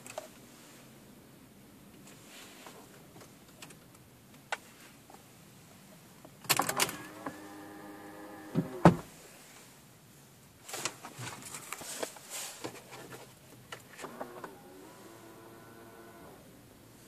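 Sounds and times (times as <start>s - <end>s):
mirror motor clicks and whine: 6.7s - 8.8s, 14.0s - 16.5s.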